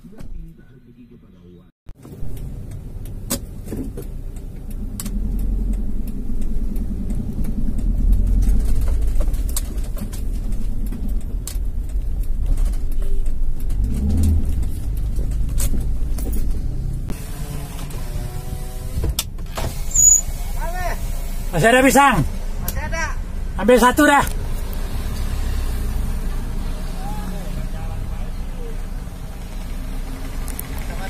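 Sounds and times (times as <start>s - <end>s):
car engine and tyres rumbling: 1.9s - 31.0s
knocks and rattles: 7.1s - 17.1s
power window winding down: 17.1s - 21.5s.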